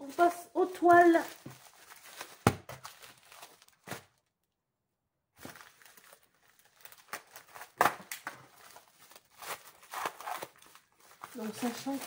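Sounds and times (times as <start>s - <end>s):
padded mailer rustling: 5.4s - 12.0s.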